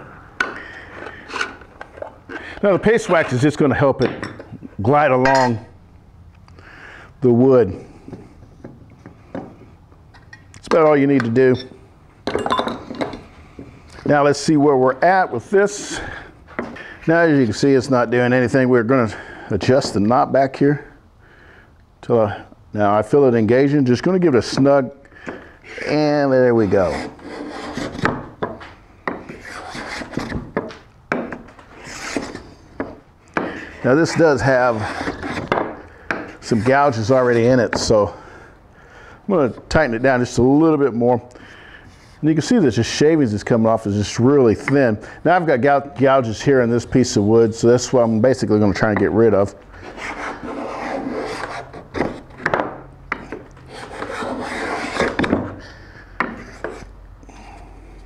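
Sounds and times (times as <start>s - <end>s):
scraper scraping wood: 25.7s - 28.3s, 29.2s - 30.7s, 31.5s - 33.0s, 33.6s - 36.8s, 49.8s - 55.6s, 56.2s - 56.9s
tool tapping on board: 35.5s - 36.3s.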